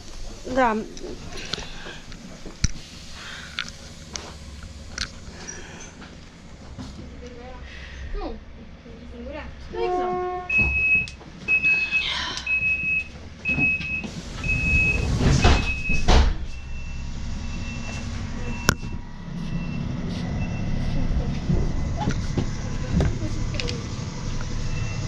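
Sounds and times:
train engine rumble: 0.0s - 25.0s
door warning beeping: 10.5s - 20.9s, 24.6s - 25.0s.

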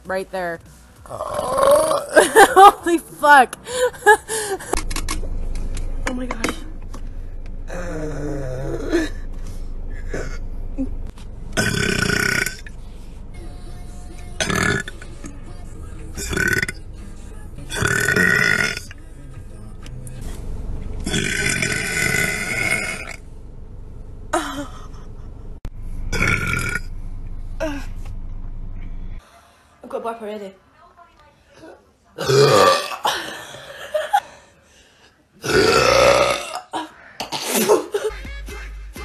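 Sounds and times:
woman burping loudly: 1.1s - 2.7s, 11.6s - 12.7s, 14.4s - 15.0s, 16.2s - 16.8s, 17.7s - 18.9s, 21.1s - 23.2s, 26.1s - 26.9s, 32.2s - 33.6s, 35.4s - 38.0s.

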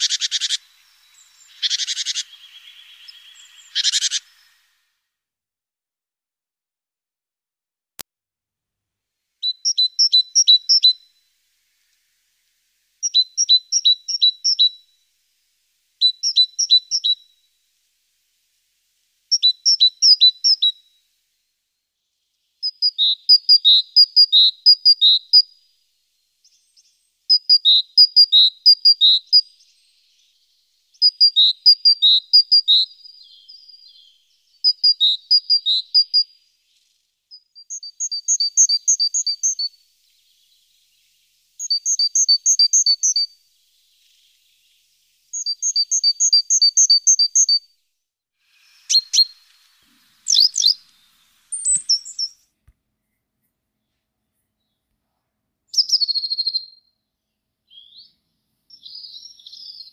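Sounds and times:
great tit singing: 0.0s - 4.7s, 9.4s - 11.1s, 13.0s - 14.8s, 16.0s - 17.4s, 19.3s - 20.8s, 22.1s - 47.6s, 48.5s - 52.4s, 55.7s - 59.9s.

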